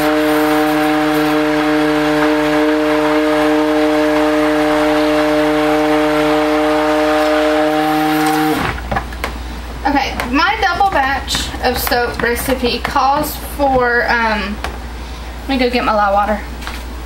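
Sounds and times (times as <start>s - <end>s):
stick blender motor whine: 0.0s - 9.0s.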